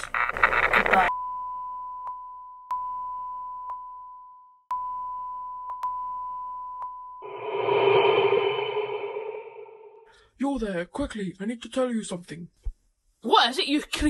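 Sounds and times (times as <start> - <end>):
rushing noise: 7.2 - 10.0.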